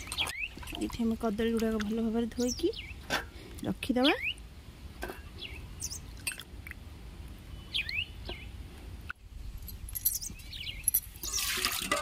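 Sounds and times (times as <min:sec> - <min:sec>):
small birds chirping: 0:00.0 - 0:01.1, 0:01.8 - 0:04.4, 0:05.2 - 0:06.2, 0:07.4 - 0:08.6, 0:09.4 - 0:11.5
water poured into steel pot: 0:11.2 - 0:12.0.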